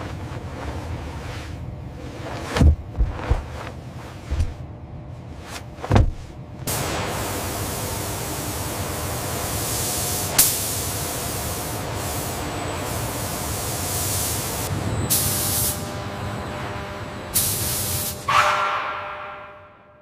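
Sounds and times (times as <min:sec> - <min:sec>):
low steady rumble: 0:00.0 - 0:06.7.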